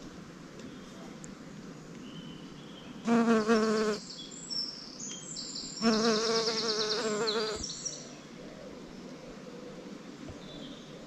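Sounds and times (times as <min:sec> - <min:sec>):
bee buzzing: 0:03.0 - 0:04.0, 0:05.8 - 0:07.7.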